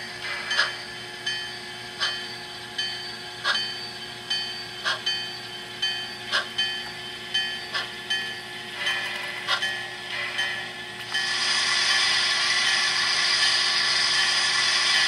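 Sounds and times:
model locomotive steam chuffs: 0:08.7 - 0:15.0.

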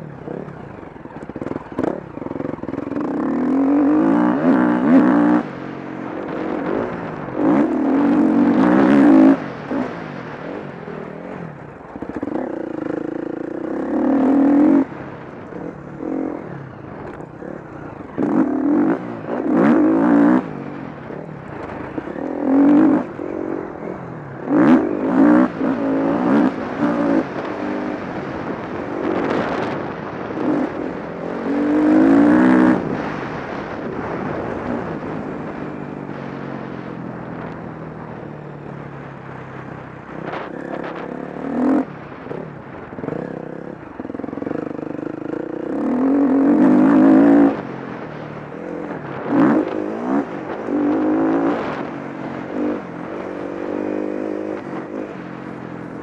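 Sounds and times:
motocross bike engine revving: 0:01.3 - 0:10.6, 0:12.1 - 0:15.0, 0:17.4 - 0:35.0, 0:40.2 - 0:55.2.

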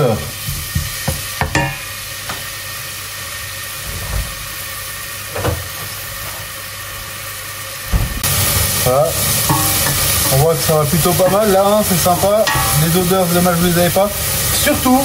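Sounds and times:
onion and garlic sizzling in oil: 0:00.0 - 0:15.0
wooden spoon knocking on pan: 0:00.4 - 0:01.9, 0:09.5 - 0:10.4, 0:11.0 - 0:13.4.

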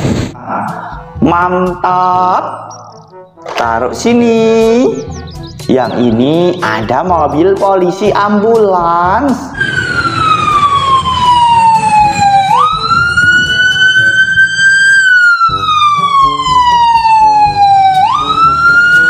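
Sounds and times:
toy electronic siren wailing: 0:09.6 - 0:19.0.

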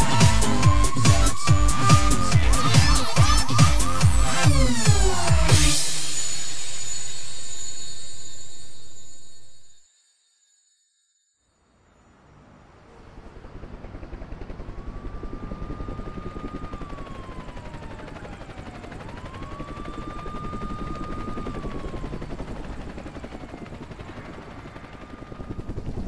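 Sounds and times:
siren wailing: 0:00.0 - 0:07.2, 0:14.4 - 0:26.0
helicopter rotor chop: 0:00.0 - 0:07.6, 0:12.9 - 0:26.0.

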